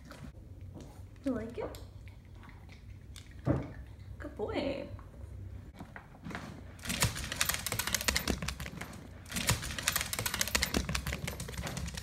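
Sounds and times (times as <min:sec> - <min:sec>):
dog crunching dry kibble: 0:06.8 - 0:12.0.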